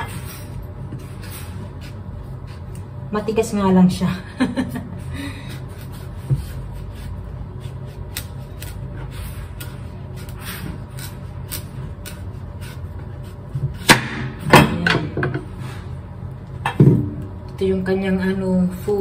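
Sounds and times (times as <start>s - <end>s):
knife cutting squash: 5.5s - 14.0s.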